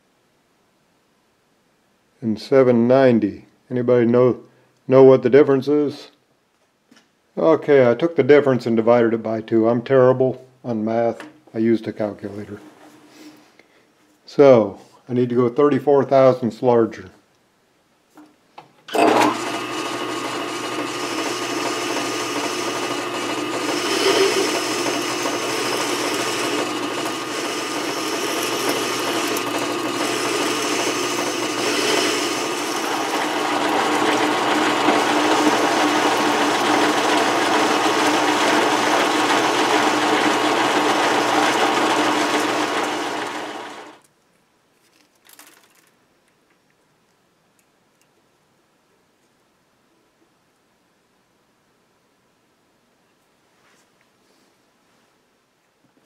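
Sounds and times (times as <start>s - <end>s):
metal lathe whining: 18.9s - 44.0s.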